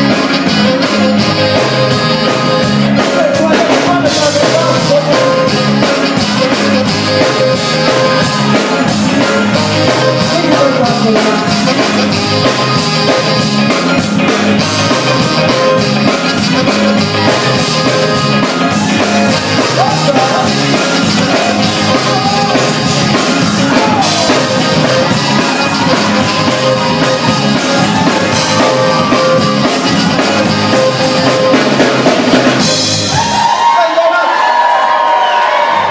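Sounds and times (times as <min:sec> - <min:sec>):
electric guitar: 0:00.0 - 0:33.8
crowd cheering: 0:00.0 - 0:35.9
drum kit: 0:00.0 - 0:35.9
person singing: 0:03.0 - 0:12.7, 0:16.7 - 0:31.6.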